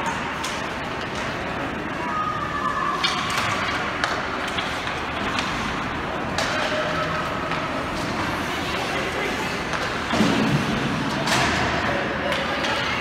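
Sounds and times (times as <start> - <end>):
hockey sticks and puck clacking: 3.0 - 13.0.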